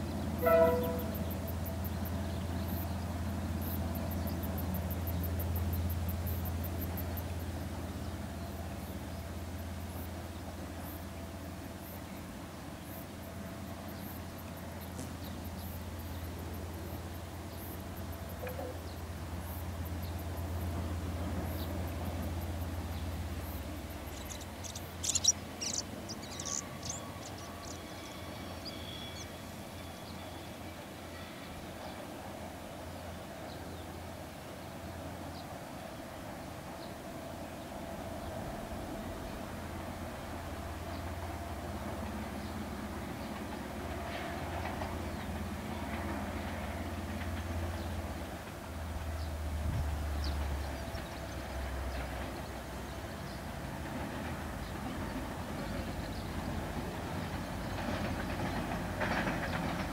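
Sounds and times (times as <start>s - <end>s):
distant locomotive rumble: 0.0s - 59.9s
bird chirping: 23.8s - 29.4s.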